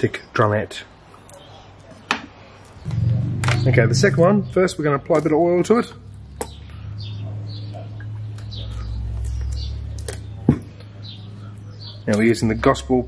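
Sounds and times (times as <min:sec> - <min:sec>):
low steady rumble: 0:02.8 - 0:05.0.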